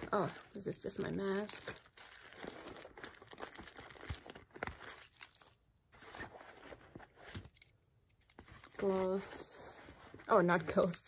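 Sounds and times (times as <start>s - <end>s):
plastic wrapping crinkling: 0.0s - 7.6s.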